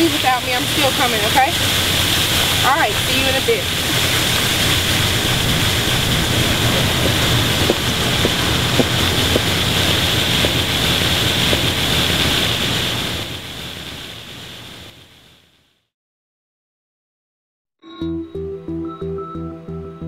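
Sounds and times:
water fountain splashing: 0.0s - 15.4s.

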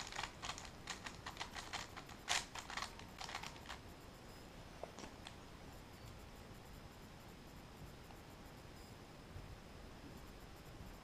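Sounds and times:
puzzle cube plastic clicks: 0.0s - 3.8s.

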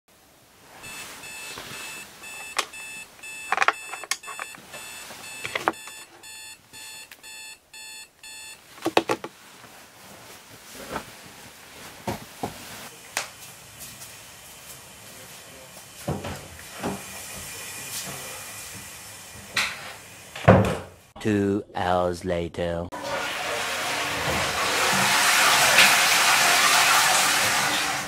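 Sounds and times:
bedding rustling: 0.2s - 6.8s, 8.6s - 12.9s
phone alarm beeping: 0.8s - 8.6s.

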